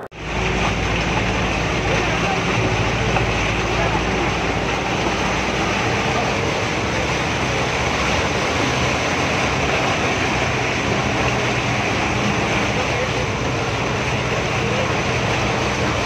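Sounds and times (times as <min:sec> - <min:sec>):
floodwater splashing against bus: 0:00.0 - 0:16.0
vehicle engine running: 0:00.0 - 0:16.0.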